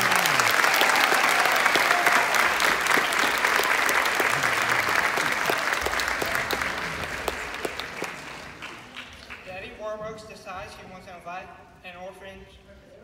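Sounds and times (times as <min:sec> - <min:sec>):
large audience clapping: 0:00.0 - 0:09.8.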